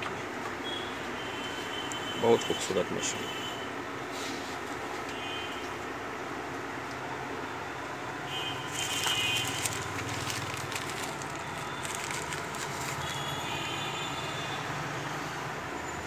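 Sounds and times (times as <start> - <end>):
plastic packaging crackling: 8.5 - 13.4.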